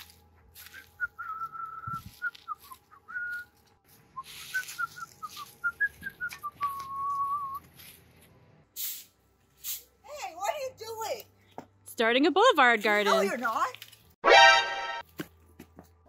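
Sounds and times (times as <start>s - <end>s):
person whistling: 0.7s - 3.5s, 4.2s - 7.6s.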